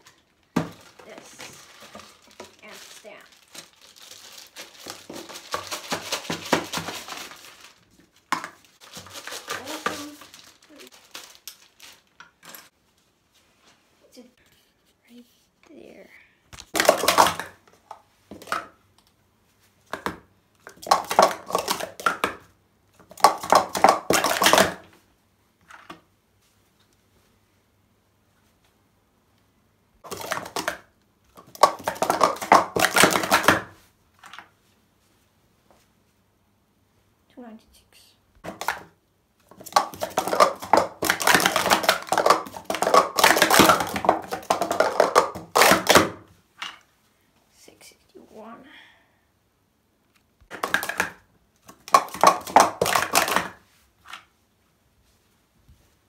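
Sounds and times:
plastic cups clattering: 4.6s - 10.4s, 16.6s - 18.8s, 19.9s - 24.9s, 30.0s - 34.5s, 38.4s - 38.9s, 39.5s - 46.8s, 50.5s - 54.3s.

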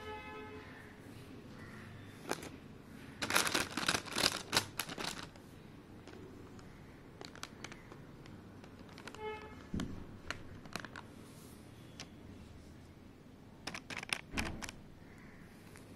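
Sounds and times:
plastic foil bag crinkling: 3.2s - 5.4s, 7.2s - 11.1s, 13.7s - 14.8s.

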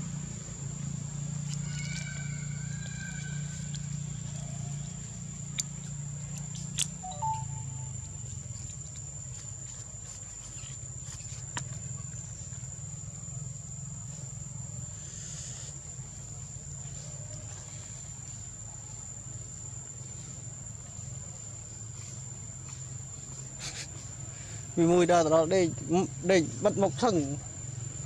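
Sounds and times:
high-pitched insect drone: 7.0s - 8.8s.

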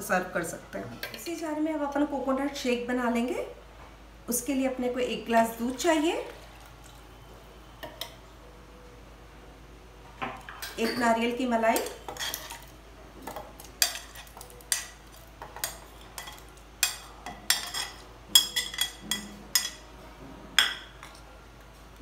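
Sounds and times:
metal spoon clinking on plate: 15.6s - 19.8s.

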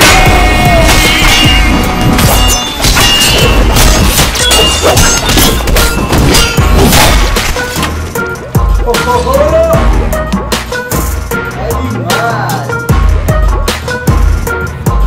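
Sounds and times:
loud song with heavy drums: 0.0s - 2.2s.

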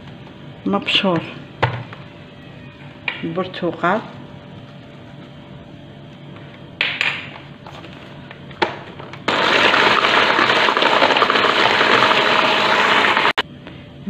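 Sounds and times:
electric hand mixer whipping batter: 9.3s - 13.4s.

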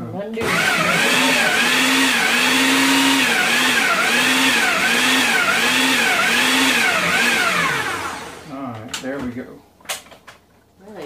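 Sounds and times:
blender motor running: 0.4s - 8.6s.

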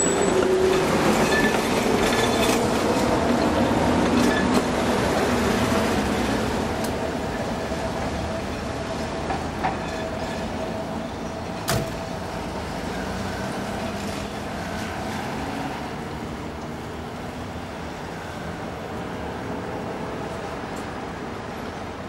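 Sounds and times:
minibus engine running: 0.0s - 22.0s
street traffic rumble: 0.0s - 22.0s
sharp bang: 11.7s - 12.2s.

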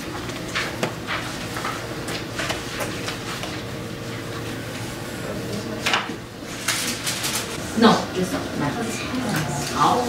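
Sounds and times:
room hum: 0.0s - 10.0s
paper sheets rustling: 0.1s - 4.2s, 6.4s - 7.6s.

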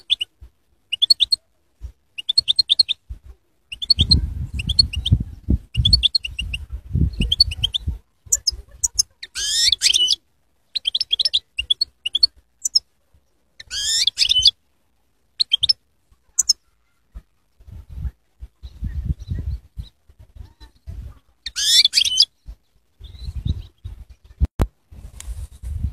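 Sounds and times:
goldfinch singing: 0.0s - 0.3s, 0.9s - 1.4s, 2.2s - 3.0s, 3.7s - 5.2s, 5.8s - 12.8s, 13.6s - 14.6s, 15.4s - 15.8s, 16.4s - 16.6s, 21.4s - 23.7s.

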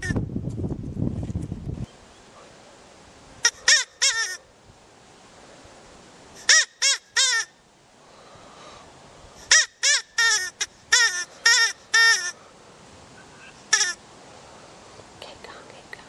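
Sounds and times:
rabbit squealing: 3.4s - 4.4s, 6.4s - 7.5s, 9.4s - 12.4s, 13.5s - 14.0s.

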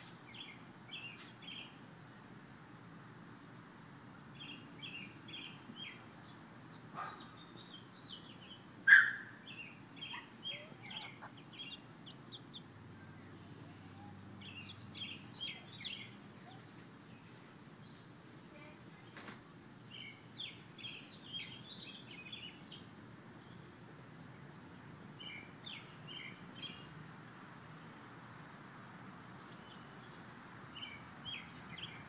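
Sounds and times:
low outdoor background hum: 0.0s - 32.0s
young chickens peeping: 4.4s - 27.1s, 29.4s - 32.0s.

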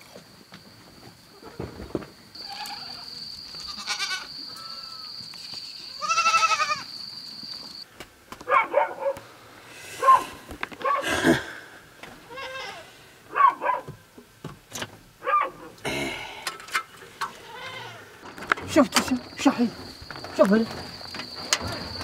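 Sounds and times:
goats bleating: 2.4s - 5.1s, 5.9s - 6.9s, 12.2s - 12.9s, 17.2s - 18.2s.

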